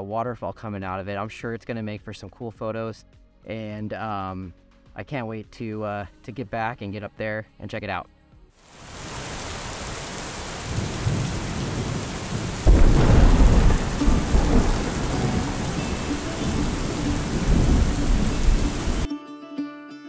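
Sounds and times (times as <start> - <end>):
steady rain: 8.6 - 19.1
low rumble of thunder: 10.6 - 19.1
thunderclap: 10.6 - 19.1.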